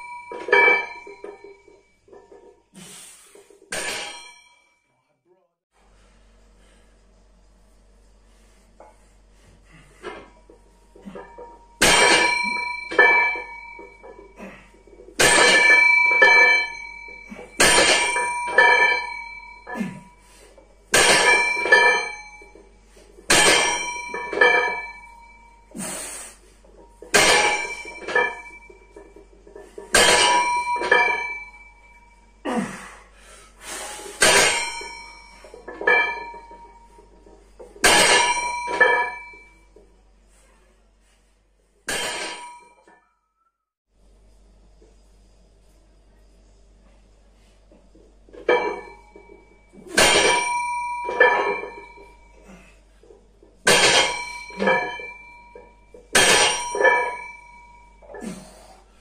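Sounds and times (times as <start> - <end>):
barbell clanging down: 0.0 - 2.6, 3.4 - 4.6, 10.0 - 25.7, 26.6 - 32.3, 34.1 - 39.8, 41.9 - 43.0, 48.3 - 58.8
weight plates clinking: 0.0 - 4.9, 9.7 - 25.8, 26.4 - 32.4, 33.9 - 41.2, 41.8 - 43.1, 47.4 - 59.0.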